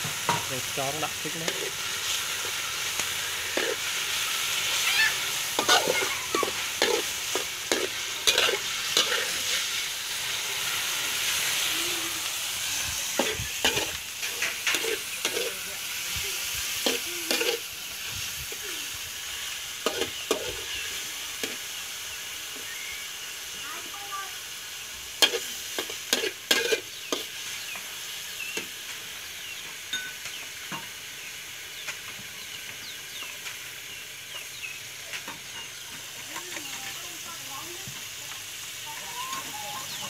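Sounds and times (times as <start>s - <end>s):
meat sizzling in a wok: 0.0s - 40.0s
metal spatula scraping a pan: 1.3s - 11.7s, 12.8s - 15.6s, 16.8s - 17.7s, 19.8s - 20.7s, 25.2s - 27.6s.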